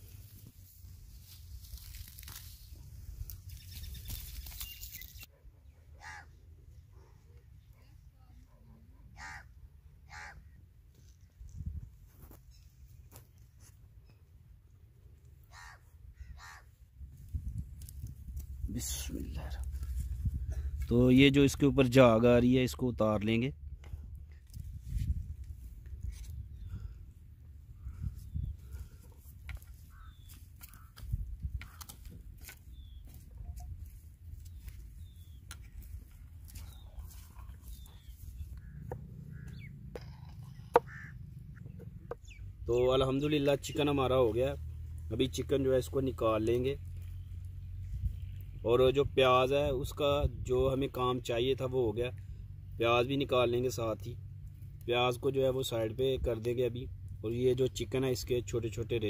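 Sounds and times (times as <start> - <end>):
bird chirps: 3.4 - 5.8, 32.7 - 33.8, 36.5 - 42.6
crows cawing: 6.0 - 6.4, 9.2 - 10.6, 15.4 - 16.8, 28.7 - 32.0, 38.5 - 41.7.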